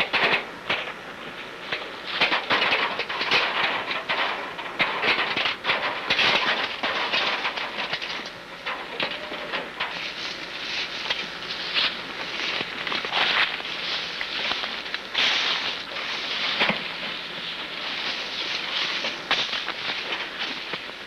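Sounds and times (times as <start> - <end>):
rustling of dry brush: 9.9 - 21.0.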